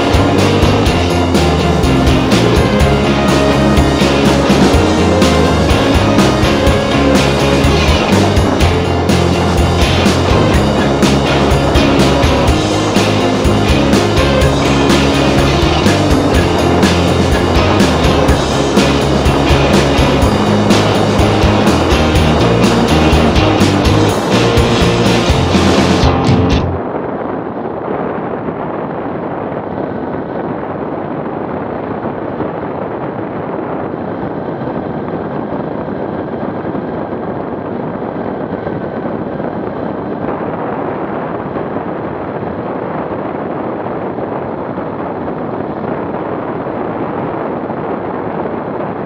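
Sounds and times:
road noise: 0.0 - 27.2
wind rush: 0.0 - 49.0.

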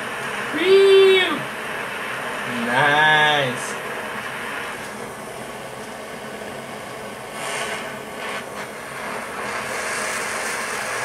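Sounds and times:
butane torch flame hissing: 0.0 - 11.0.

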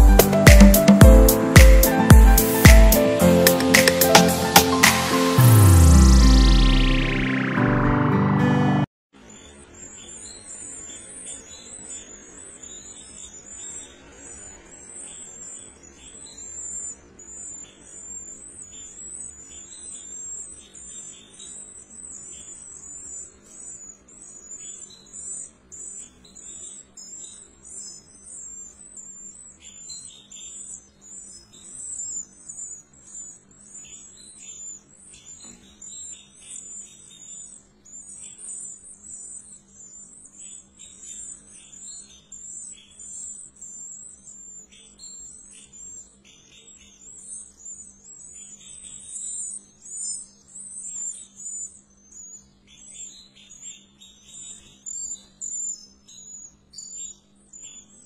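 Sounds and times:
nestlings high-pitched chirping: 0.0 - 6.8, 9.2 - 58.0
lower chirps: 0.0 - 58.0.

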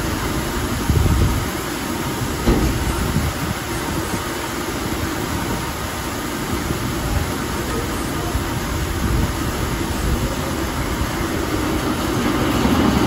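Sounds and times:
mill machinery running: 0.0 - 13.0
brief knock: 2.4 - 2.8.

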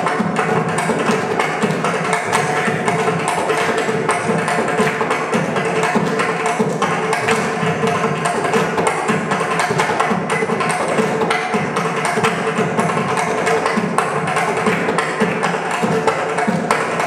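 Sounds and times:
barrel drums played by hand: 0.0 - 17.0.

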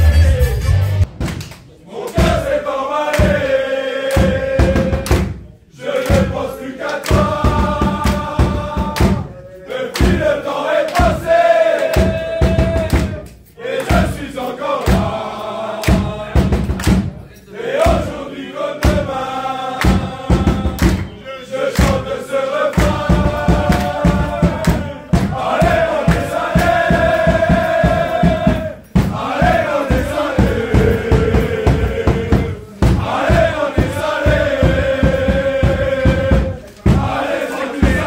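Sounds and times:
men chanting in unison: 1.8 - 38.0
clapping and thumping in time: 9.9 - 10.3, 15.8 - 17.1, 19.8 - 21.2, 21.8 - 22.0, 22.7 - 26.7.

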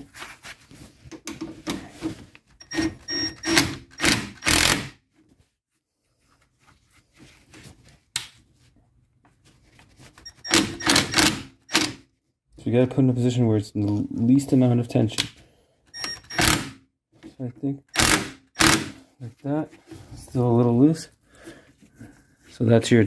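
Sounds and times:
knocks and clunks of hand tools: 1.1 - 2.9.

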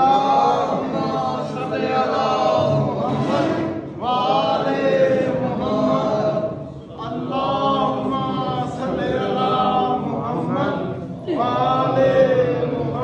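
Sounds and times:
men chanting a devotional song: 0.0 - 13.0.

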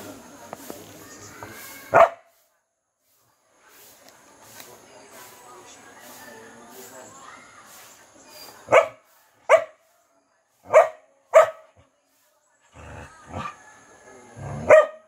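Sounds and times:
dog barking: 1.9 - 2.3, 8.6 - 9.8, 10.6 - 11.8, 14.5 - 15.0.

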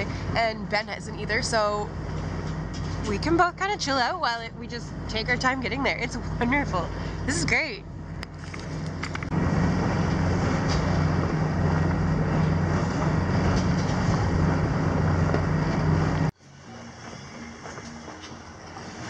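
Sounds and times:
boat engine low drone: 0.0 - 19.0.

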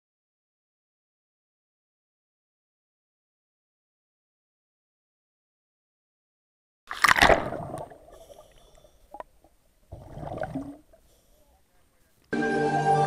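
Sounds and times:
underwater bubbling: 6.9 - 11.6
music: 12.3 - 13.0.

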